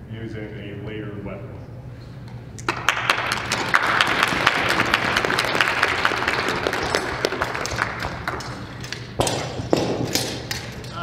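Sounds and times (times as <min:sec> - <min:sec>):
audience applauding: 0:02.7 - 0:09.0.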